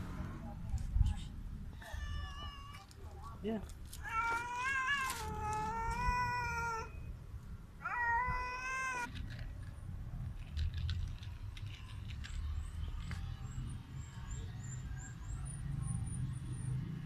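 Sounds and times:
cat meowing: 1.7s - 2.9s, 4.0s - 7.0s, 7.8s - 9.1s.

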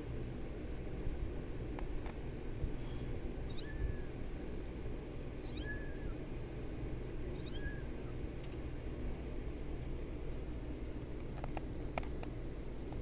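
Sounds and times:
low background hum: 0.0s - 13.0s
kitten meowing: 3.5s - 4.1s, 5.4s - 6.2s, 7.3s - 8.1s.

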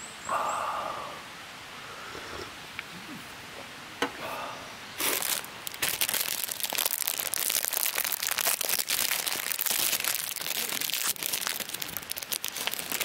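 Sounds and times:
plastic wrapper crinkling: 5.0s - 13.0s.

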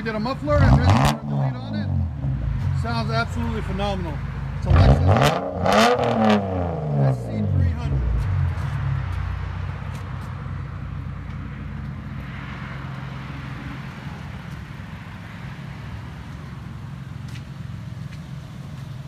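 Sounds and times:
car engine idling rumble: 0.0s - 19.0s.

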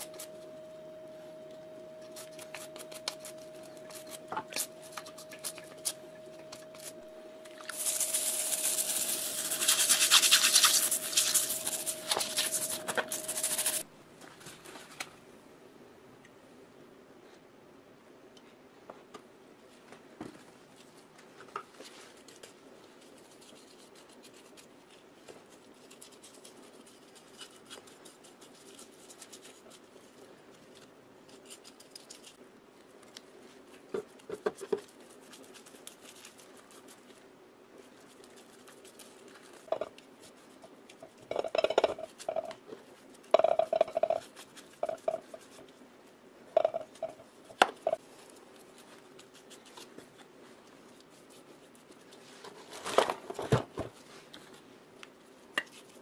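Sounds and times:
paintbrush brushing thick gel: 0.0s - 13.8s
faint steady hum: 0.0s - 56.0s.

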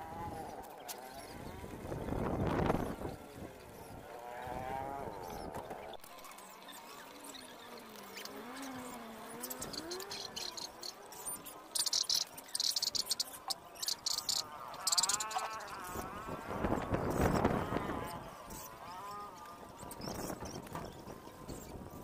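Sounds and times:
insects buzzing in short bursts: 6.1s - 20.3s.

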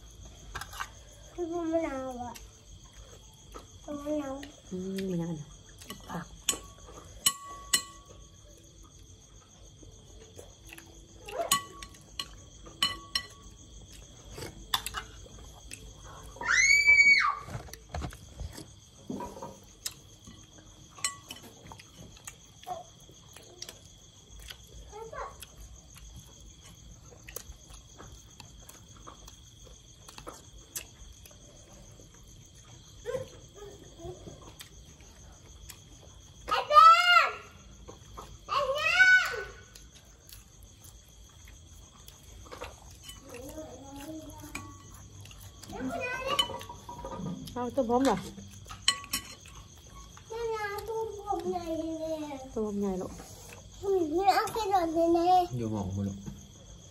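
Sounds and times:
crickets chirping: 0.0s - 56.9s
insects trilling: 0.0s - 56.9s
cutlery clinking on plate: 5.9s - 8.1s, 11.4s - 13.5s, 48.7s - 49.6s.

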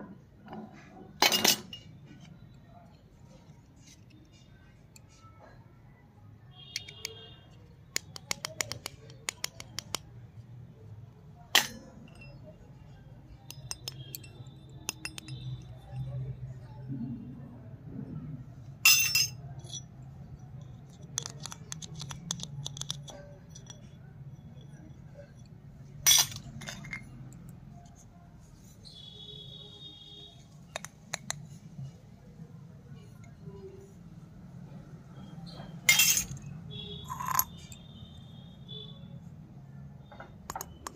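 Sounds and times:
small metal plate clinking: 1.2s - 1.9s, 11.5s - 12.6s, 13.5s - 16.2s, 18.8s - 20.0s, 20.6s - 27.5s, 35.8s - 37.8s
clicks on plastic toy: 7.9s - 10.1s
clicks of small metal utensils: 20.9s - 23.9s.

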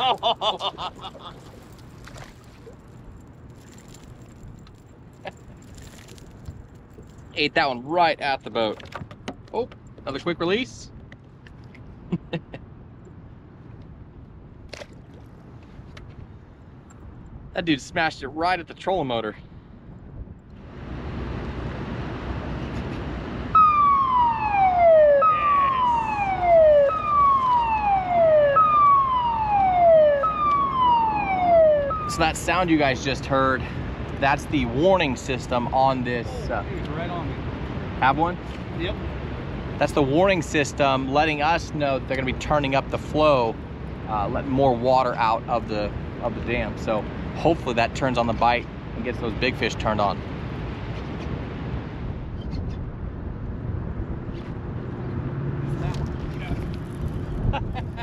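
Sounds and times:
river water: 0.0s - 9.1s, 14.4s - 16.0s
wind: 0.0s - 58.0s
warning siren falling wail: 23.5s - 32.6s.

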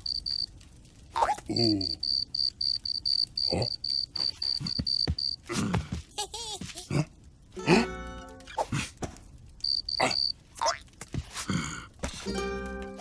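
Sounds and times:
cartoon cricket chirping: 0.0s - 0.5s, 1.7s - 5.4s, 9.6s - 10.4s.

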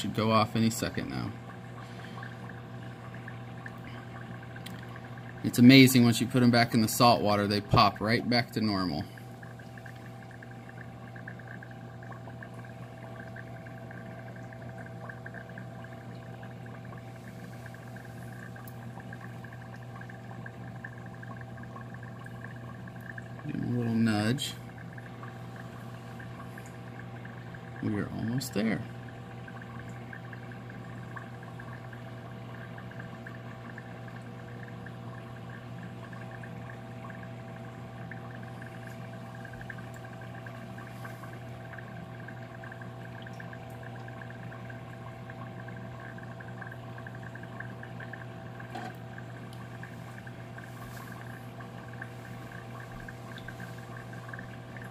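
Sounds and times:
air bubbling in water: 0.0s - 54.9s
aquarium air pump humming: 0.0s - 54.9s.

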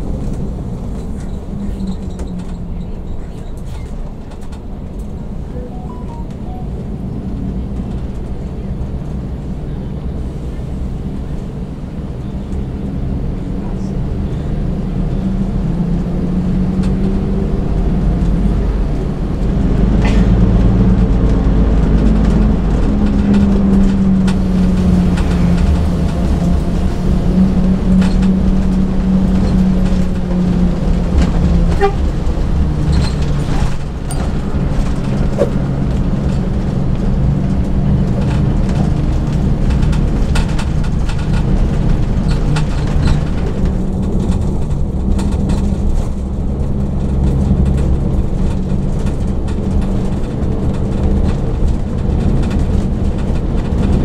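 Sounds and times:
bus diesel engine rumble: 0.0s - 54.0s
small rattles and clicks: 35.9s - 54.0s.

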